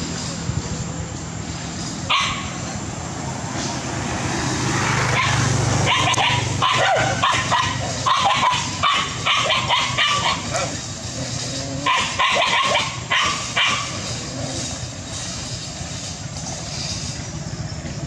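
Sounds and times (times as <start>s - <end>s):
dogs barking and yipping: 2.0s - 2.8s, 4.7s - 17.0s.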